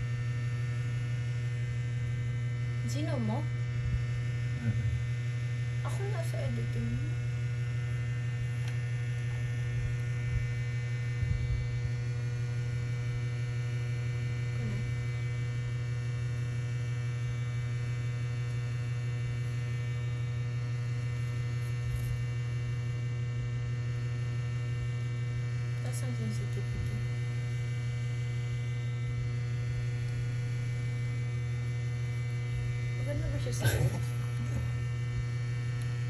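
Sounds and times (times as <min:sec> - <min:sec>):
low electrical hum: 0:00.0 - 0:36.0.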